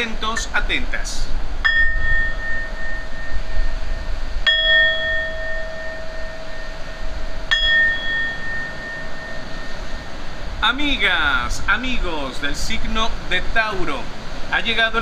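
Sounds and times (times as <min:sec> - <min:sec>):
metal singing bowl ringing: 0:01.6 - 0:10.5.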